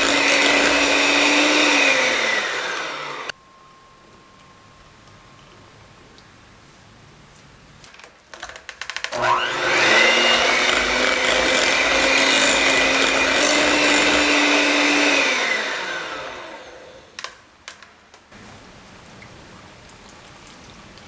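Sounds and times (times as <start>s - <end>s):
electric hand mixer whining: 0.0s - 3.4s, 9.1s - 17.2s.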